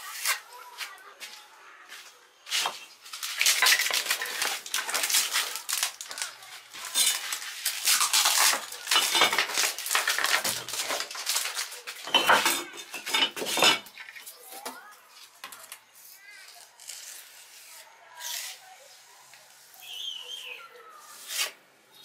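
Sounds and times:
metal objects clattering and scraping: 2.6s - 6.2s, 6.8s - 7.7s, 8.3s - 14.2s.

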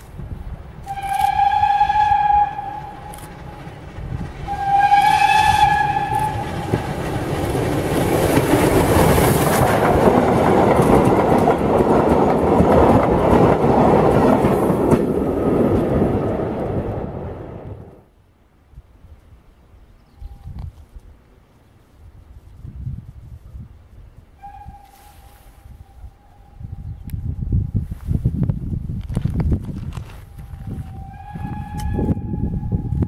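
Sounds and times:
train wheels rumbling on rails: 0.0s - 18.1s, 22.1s - 33.0s
steam whistle blasts: 0.9s - 3.3s, 4.5s - 6.8s, 24.4s - 26.8s, 30.7s - 33.0s.

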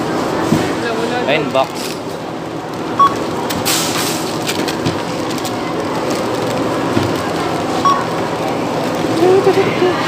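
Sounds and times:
steady background hum: 0.0s - 10.0s
plastic bags rustling: 1.3s - 10.0s
barcode scanner beep: 3.0s - 3.2s, 7.8s - 8.1s.

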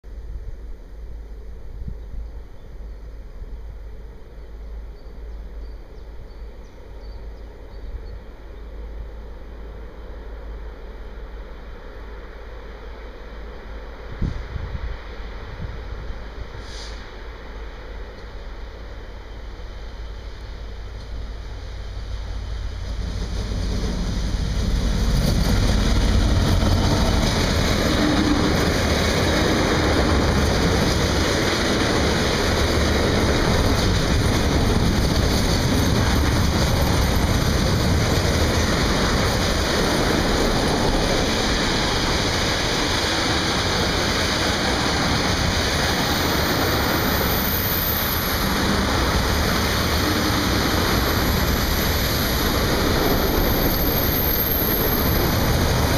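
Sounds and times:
diesel locomotive engine: 0.1s - 55.9s
train wheels rumbling on rails: 1.2s - 55.9s
high-pitched squeal: 38.5s - 55.9s.

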